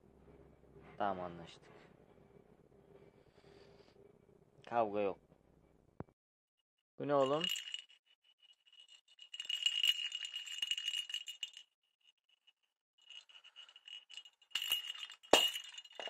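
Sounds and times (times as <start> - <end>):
bell jingling in toy ball: 7.0 - 16.0.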